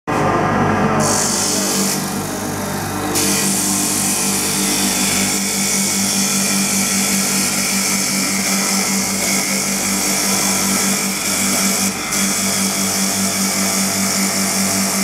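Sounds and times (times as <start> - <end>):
pulsing motor hum: 0.2 - 15.0
wood cutting hiss: 3.2 - 14.9.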